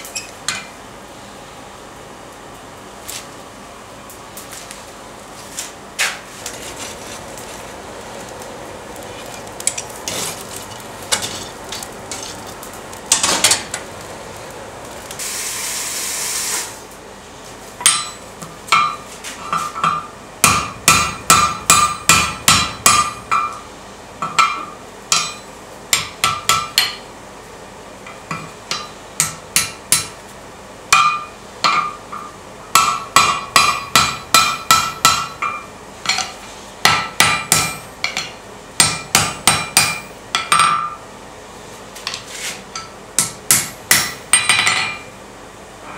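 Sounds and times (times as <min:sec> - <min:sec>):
hammer ringing on hot iron: 0:17.8 - 0:19.1, 0:19.8 - 0:23.6, 0:24.2 - 0:27.0, 0:28.1 - 0:30.2, 0:30.9 - 0:41.0, 0:42.8 - 0:45.1.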